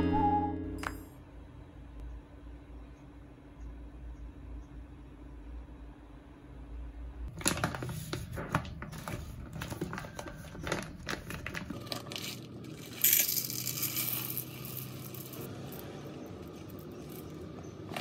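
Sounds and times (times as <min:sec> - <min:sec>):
plastic bag crinkling: 0:07.3 - 0:18.0
rice pouring into plastic cup: 0:11.2 - 0:18.0.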